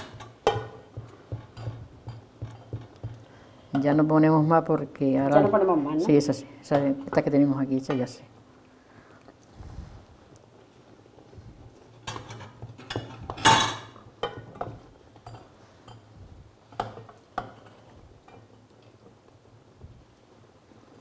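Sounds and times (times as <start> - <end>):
metal spoon clinking on saucepan: 0.1 - 2.8.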